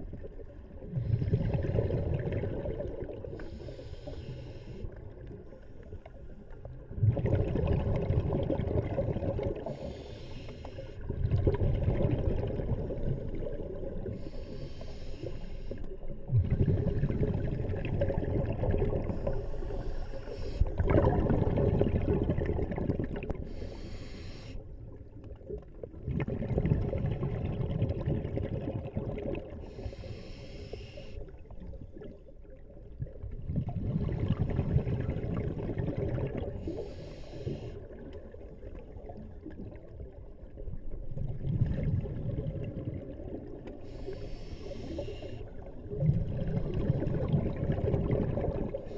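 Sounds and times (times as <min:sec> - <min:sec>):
exhale bubbles rushing: 0:00.9 - 0:03.4, 0:06.9 - 0:09.9, 0:16.3 - 0:23.6, 0:26.0 - 0:29.6, 0:33.5 - 0:37.0, 0:41.2 - 0:48.9
regulator inhale hiss: 0:03.4 - 0:05.0, 0:09.6 - 0:11.1, 0:14.0 - 0:16.0, 0:19.0 - 0:20.8, 0:23.4 - 0:24.7, 0:29.6 - 0:31.4, 0:36.6 - 0:37.9, 0:43.8 - 0:45.7.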